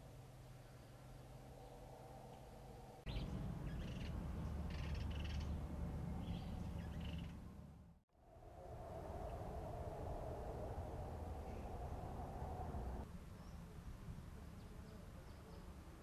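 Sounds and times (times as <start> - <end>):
chirpy bird calls: 3.1 - 5.6.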